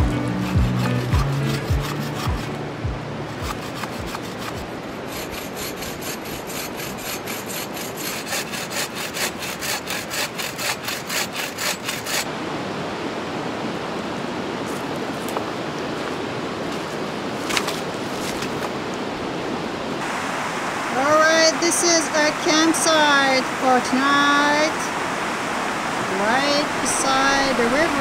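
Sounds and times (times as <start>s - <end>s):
river water rushing: 0.0s - 28.0s
hand saw cutting branch: 0.1s - 2.6s, 3.4s - 12.3s.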